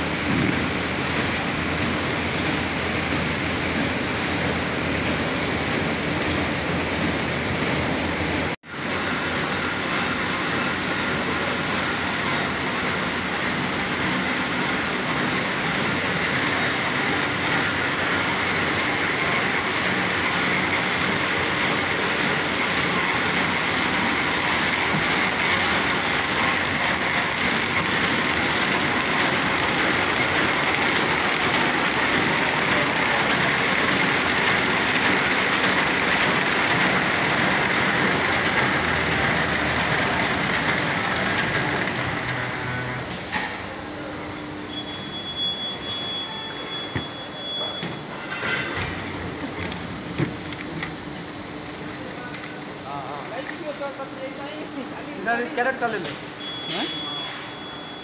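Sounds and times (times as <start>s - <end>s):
paper bag machines running: 0.0s - 43.6s.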